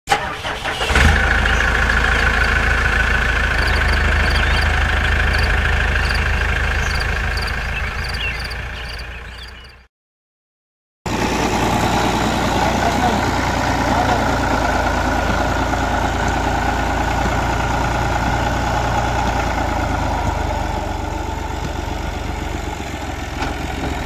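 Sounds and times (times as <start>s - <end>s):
engine cranking and starting: 0.1s - 8.9s
diesel tractor engine running: 0.1s - 9.9s, 11.1s - 24.0s
engine rumbling: 0.1s - 9.9s, 11.1s - 24.0s.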